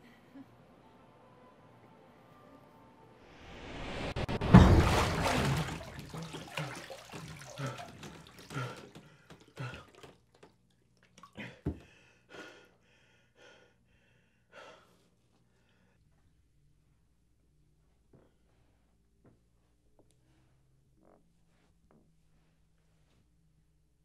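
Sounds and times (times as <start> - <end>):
bathwater splash: 4.2 - 10.4
water dripping: 4.5 - 11.5
man gasping: 6.1 - 10.1, 11.2 - 15.0.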